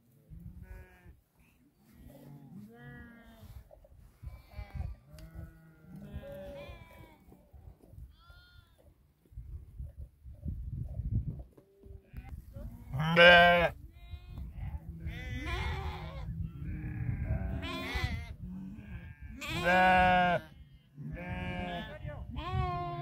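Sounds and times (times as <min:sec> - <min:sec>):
sheep and goats bleating: 0:00.4 - 0:01.2, 0:01.8 - 0:07.4, 0:08.0 - 0:08.9, 0:12.0 - 0:23.0.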